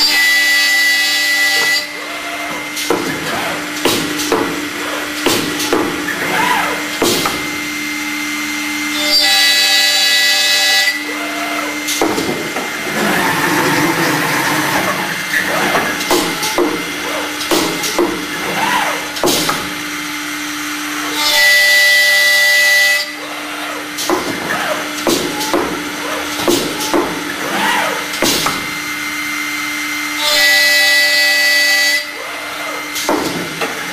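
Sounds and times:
machine low hum: 1.5s - 21.2s
machine carriage clunks: 2.5s - 7.5s, 11.9s - 19.7s, 24.0s - 28.6s
drilling and routing into wood: 12.7s - 17.3s.

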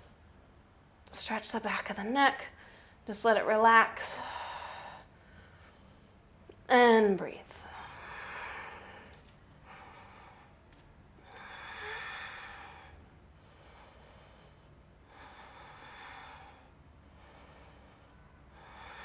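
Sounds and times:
woman breathing: 2.5s - 3.0s, 4.0s - 6.5s, 7.5s - 19.0s.

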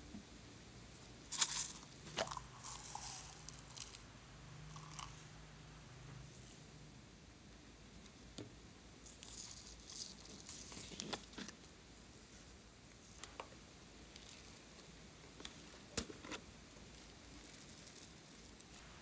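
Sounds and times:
plastic containers rustling: 1.3s - 4.0s
foam beads pattering: 1.3s - 4.1s, 9.0s - 11.0s, 16.9s - 18.8s.

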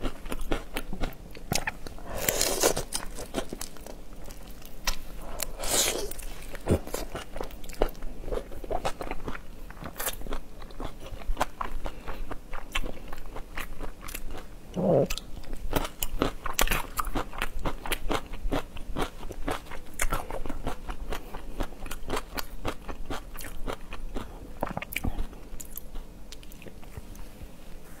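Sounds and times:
wet mouth sounds: 14.8s - 15.2s.

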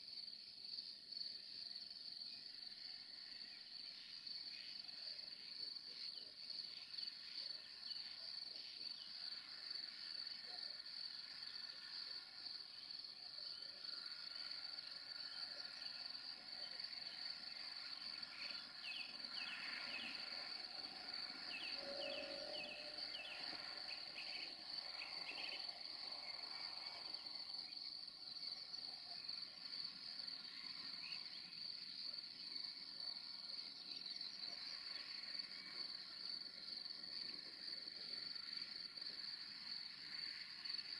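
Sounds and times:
crickets chorus: 0.0s - 40.9s.

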